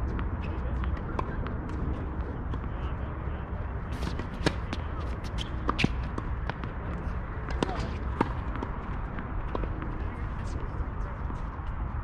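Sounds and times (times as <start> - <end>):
tennis ball knocks: 4.0 - 6.6.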